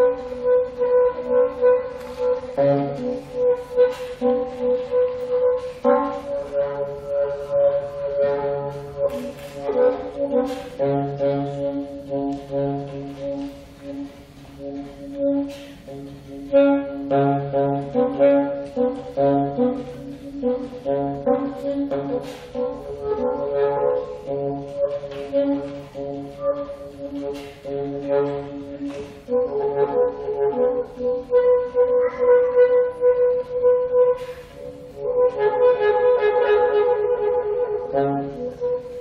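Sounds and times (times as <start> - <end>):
saxophone melody: 0.0 - 39.0.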